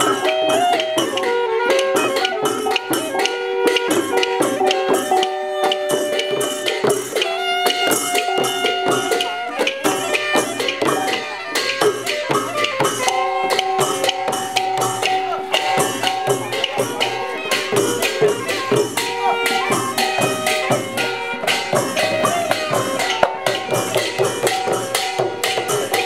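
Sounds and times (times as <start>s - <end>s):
upbeat music with percussion: 0.0s - 26.0s.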